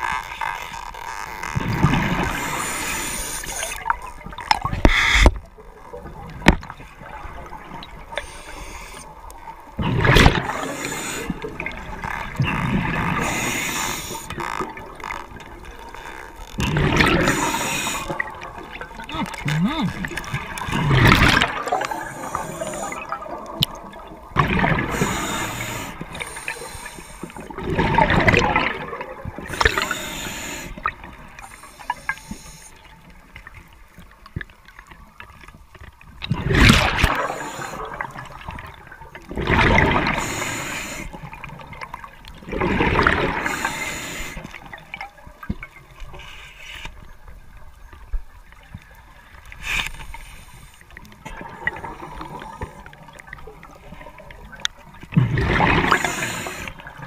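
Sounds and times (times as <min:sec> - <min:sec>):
bubbles gurgling rush: 0:01.5 - 0:05.3, 0:09.6 - 0:16.0, 0:16.6 - 0:31.5, 0:36.2 - 0:46.0, 0:51.2 - 0:57.0
diver breathing through regulator: 0:02.2 - 0:03.8, 0:08.2 - 0:09.2, 0:10.4 - 0:11.6, 0:13.0 - 0:14.3, 0:17.0 - 0:18.3, 0:21.6 - 0:23.2, 0:24.8 - 0:27.5, 0:29.5 - 0:32.8, 0:37.1 - 0:38.0, 0:40.0 - 0:41.2, 0:43.3 - 0:44.6, 0:55.8 - 0:56.9.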